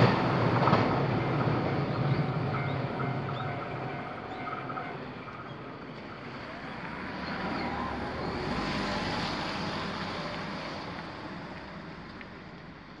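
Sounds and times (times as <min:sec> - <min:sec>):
car passing by: 0:06.0 - 0:12.4.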